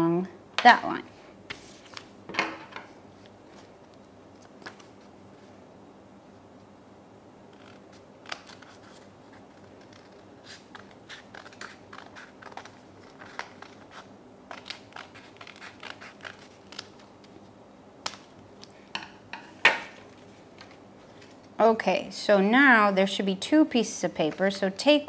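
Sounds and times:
scissors snipping paper: 0:07.6 - 0:17.1.

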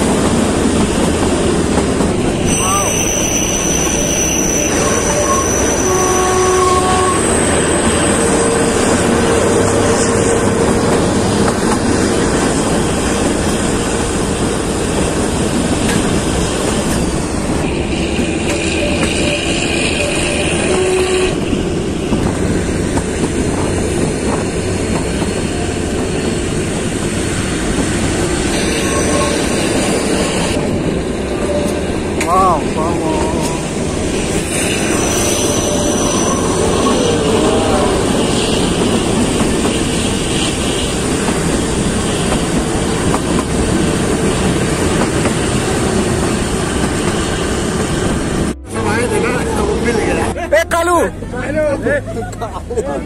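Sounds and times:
train wheels clattering on rails: 0:00.0 - 0:32.5, 0:33.2 - 0:48.6
high-pitched wheel squeals: 0:02.4 - 0:10.5, 0:18.2 - 0:21.4, 0:28.4 - 0:30.5, 0:33.4 - 0:41.0.

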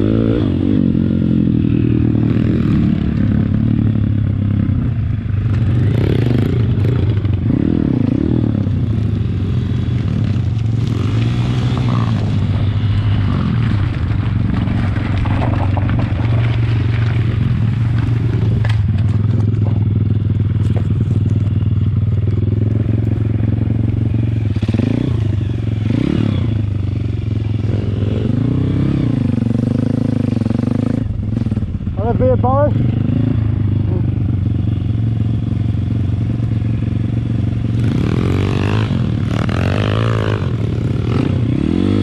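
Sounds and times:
motorbike engine revving: 0:00.0 - 0:42.0
bike knocks and rattles: 0:14.0 - 0:22.5.

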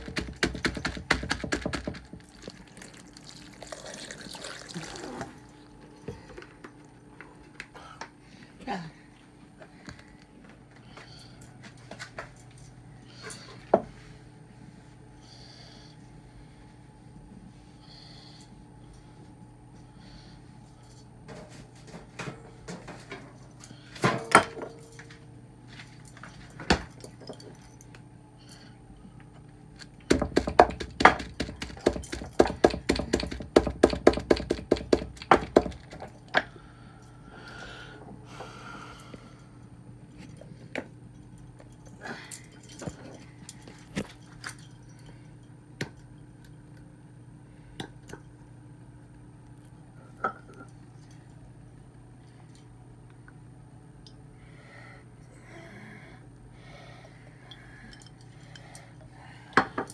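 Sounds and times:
dishes knocking and clinking: 0:24.0 - 0:24.8.

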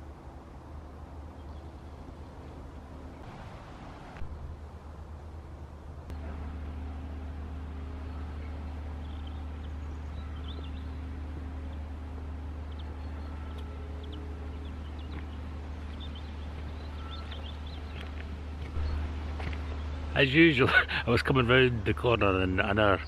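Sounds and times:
steady low rumble: 0:00.0 - 0:23.0
small birds chirping: 0:07.9 - 0:23.0.

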